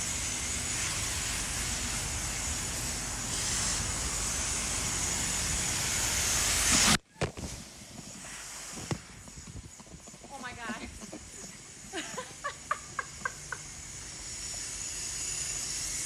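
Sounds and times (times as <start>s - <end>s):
pressure washer spraying car: 0.0s - 7.0s.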